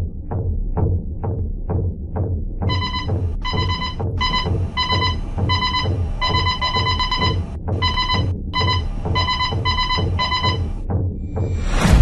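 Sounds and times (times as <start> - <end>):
low pulsing music: 0.0 - 12.0
short high electronic beeps: 2.7 - 10.7.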